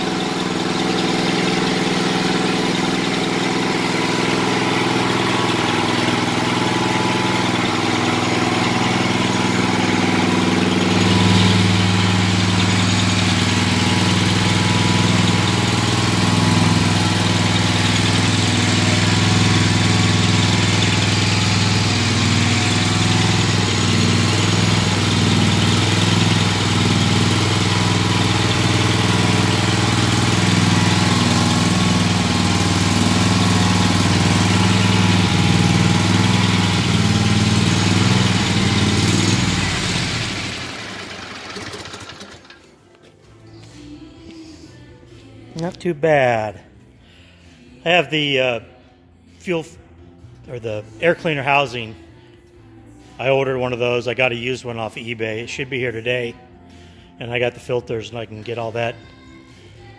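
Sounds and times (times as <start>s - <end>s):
mower engine idling: 0.0s - 43.8s.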